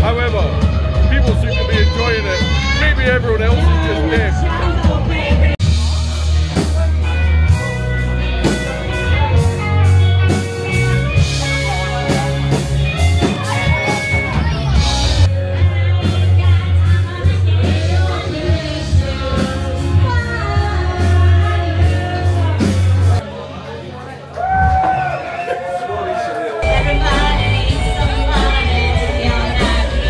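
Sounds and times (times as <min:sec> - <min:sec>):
rock music with singer: 0:00.0 - 0:23.8, 0:26.6 - 0:30.0.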